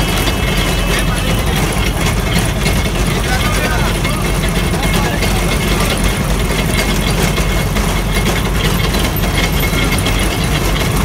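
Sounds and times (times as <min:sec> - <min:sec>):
engine low drone: 0:00.0 - 0:11.0.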